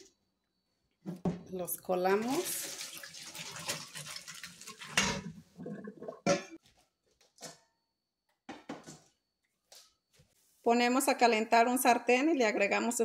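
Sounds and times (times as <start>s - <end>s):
water poured into metal strainer: 2.2s - 5.4s.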